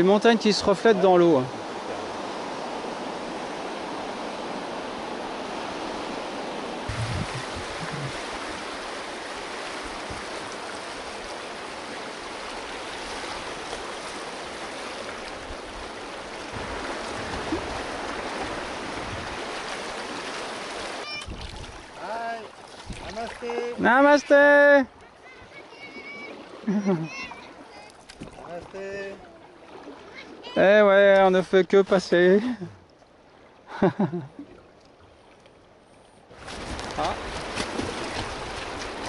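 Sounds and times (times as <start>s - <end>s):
river water rushing around raft: 0.0s - 39.0s
low thumps: 6.9s - 8.3s.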